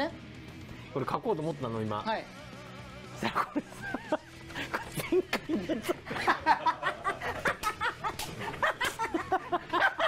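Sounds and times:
men laughing: 3.1s - 10.0s.

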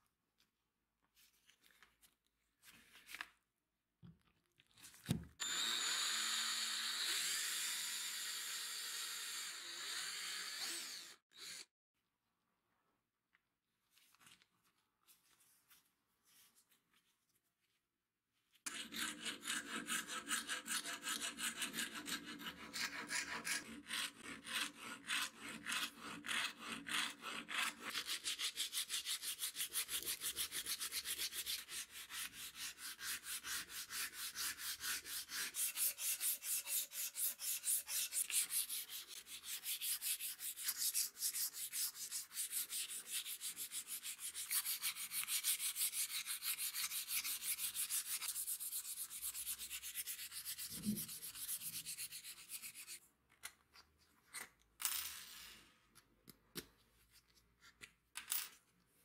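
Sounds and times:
hand file rasping on wood: 18.7s - 53.0s
sandpaper rubbing wood: 18.7s - 53.0s.

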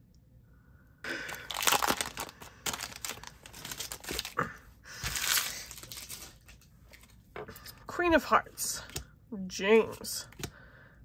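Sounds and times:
foil wrapper crinkling and tearing: 1.1s - 4.4s, 5.0s - 7.1s.

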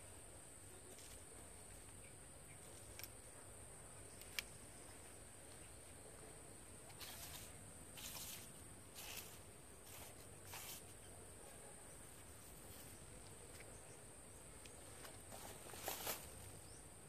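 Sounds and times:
insect chirring: 0.0s - 12.1s
short scratchy noises: 6.9s - 11.0s.

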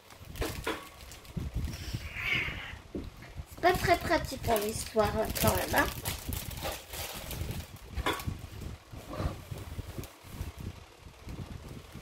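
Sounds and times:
plastic packaging crinkling: 0.0s - 2.2s, 3.6s - 8.8s.

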